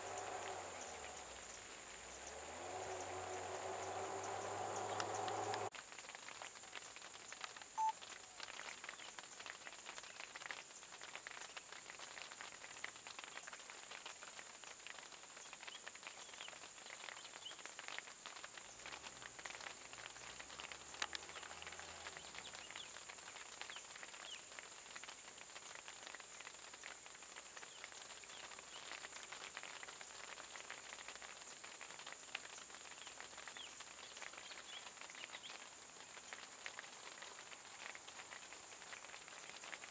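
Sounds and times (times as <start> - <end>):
insect drone: 0.0 - 5.7
rain pattering: 0.0 - 39.9.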